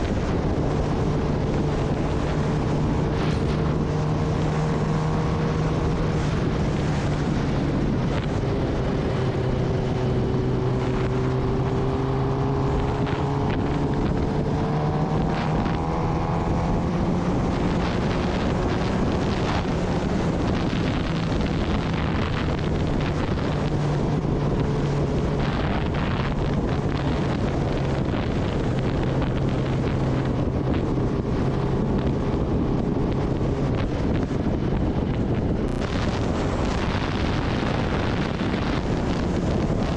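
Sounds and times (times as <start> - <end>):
motorcycle engine running: 0.0 - 39.9
wind noise on microphone: 0.0 - 39.9.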